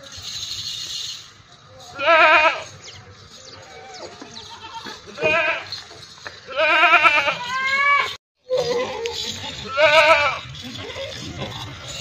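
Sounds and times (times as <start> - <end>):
goats bleating: 1.9 - 2.8, 3.6 - 5.8, 6.4 - 11.5.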